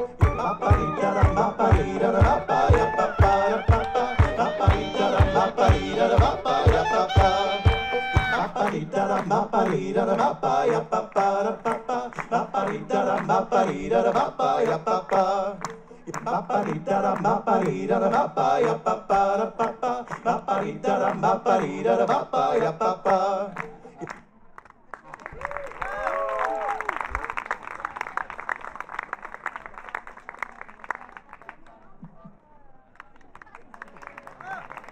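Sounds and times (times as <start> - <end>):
held clarinet note: 0.0 - 8.6
looped folk music: 0.0 - 10.8
bass drum beat: 0.2 - 8.5.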